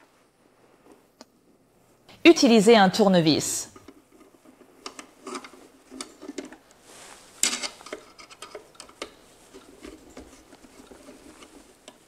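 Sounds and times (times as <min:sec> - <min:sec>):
screwdriver clicking and scraping: 0:04.2 - 0:06.6, 0:07.4 - 0:12.0.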